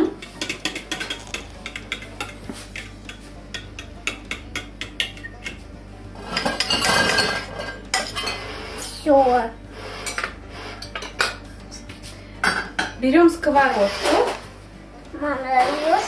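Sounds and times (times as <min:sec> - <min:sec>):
fork beating eggs in glass bowl: 0:00.2 - 0:05.6.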